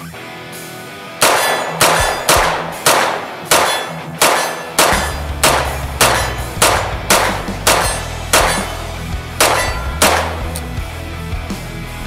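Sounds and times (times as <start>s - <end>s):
carbine gunshots: 1.2s - 10.7s
steel plate target clanging: 1.2s - 10.7s.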